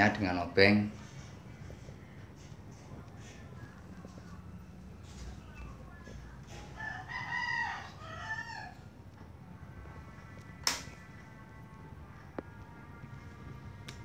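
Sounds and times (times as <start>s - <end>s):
rooster crowing: 6.6s - 9.0s.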